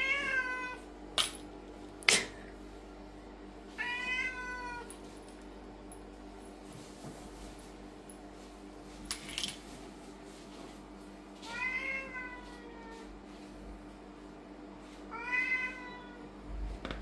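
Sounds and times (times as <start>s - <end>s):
cat meowing: 3.8s - 4.9s, 15.1s - 16.3s.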